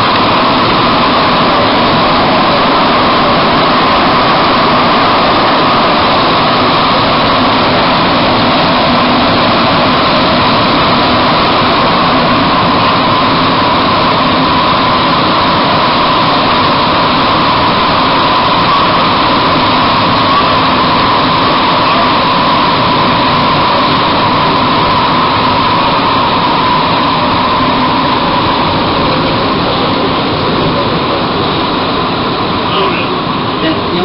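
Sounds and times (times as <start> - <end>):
constant high hum: 0.0 - 34.0
metro train rushing through tunnel: 0.0 - 34.0.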